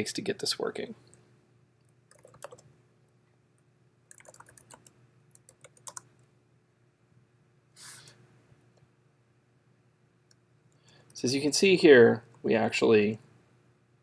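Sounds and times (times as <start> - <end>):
keyboard typing: 2.1 - 2.7, 4.1 - 6.2.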